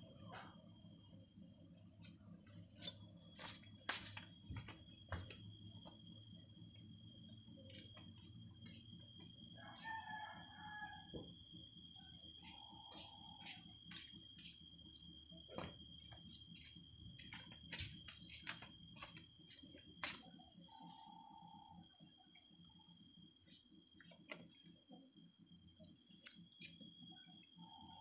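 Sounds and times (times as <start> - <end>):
high-pitched insect drone: 0.0 - 28.0
wood fire crackling and popping: 2.8 - 5.5, 15.4 - 20.4.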